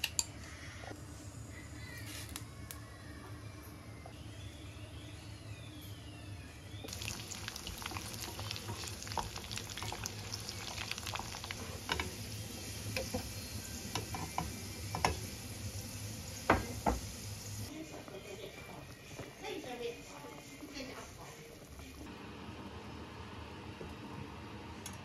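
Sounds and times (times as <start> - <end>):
food sizzling in a pan: 6.9 - 24.8
knocks on pan: 16.5 - 17.1.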